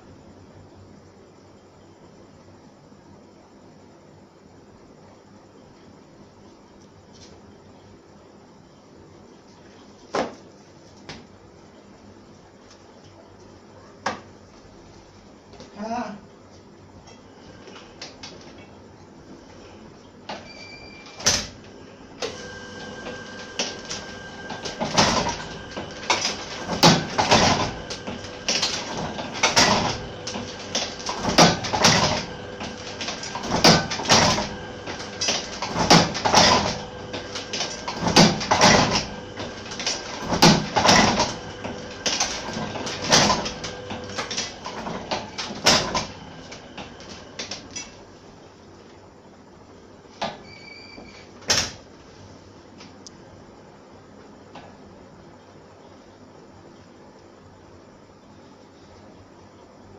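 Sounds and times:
machine hum: 0:15.8 - 0:49.8
printing press clanking: 0:22.2 - 0:48.0.

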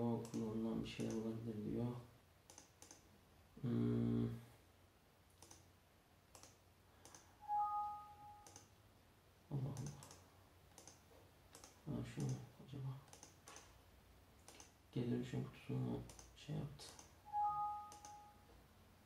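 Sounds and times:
computer mouse clicking: 0:00.2 - 0:01.3, 0:02.5 - 0:03.1, 0:05.4 - 0:05.7, 0:06.3 - 0:07.3, 0:08.4 - 0:08.7, 0:09.7 - 0:12.4, 0:13.1 - 0:13.8, 0:14.4 - 0:14.8, 0:16.0 - 0:17.2, 0:17.9 - 0:18.3
two-tone electronic beep: 0:07.4 - 0:08.4, 0:17.3 - 0:18.4.

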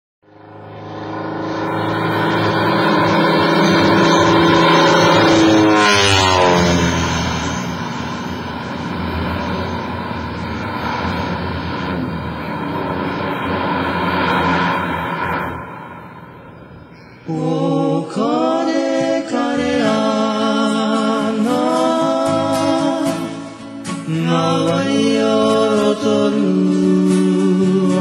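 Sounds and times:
propeller plane flying past: 0:00.2 - 0:17.3.

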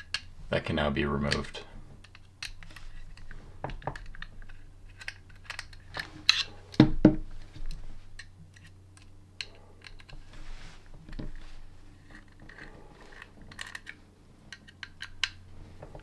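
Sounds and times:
plastic housing handled: 0:02.0 - 0:10.3
allen key clicking on screws: 0:12.0 - 0:15.4.

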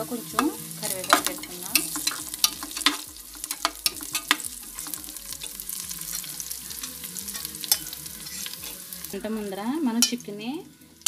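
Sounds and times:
onions sizzling in hot oil: 0:00.0 - 0:11.0
spatula scraping a pot: 0:00.2 - 0:09.2.

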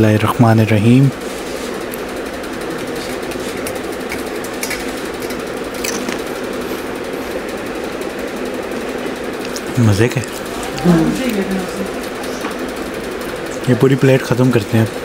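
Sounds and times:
small engine rattling drone: 0:00.0 - 0:15.0.

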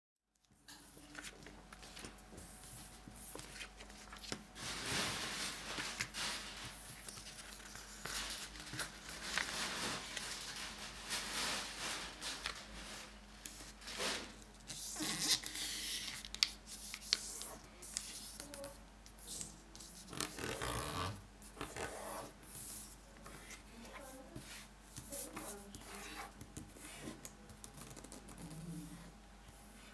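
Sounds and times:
paper rustling on wooden table: 0:00.8 - 0:18.4.

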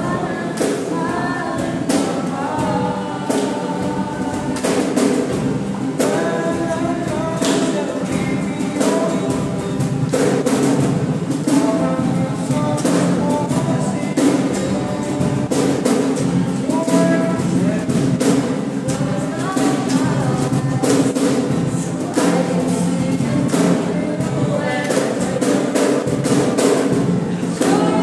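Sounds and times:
group singing: 0:00.0 - 0:28.0
strummed acoustic guitar: 0:00.0 - 0:28.0
hand claps: 0:18.3 - 0:20.2, 0:23.4 - 0:23.9.

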